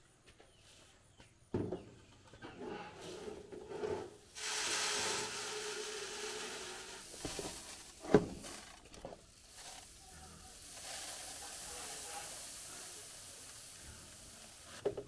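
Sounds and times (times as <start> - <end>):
rice grains pouring into metal hopper: 4.3 - 14.8.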